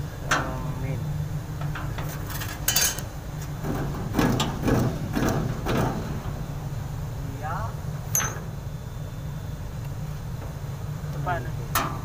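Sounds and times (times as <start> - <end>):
steady low hum: 0.0 - 12.0
sharp knocks and clinks: 8.1 - 8.5.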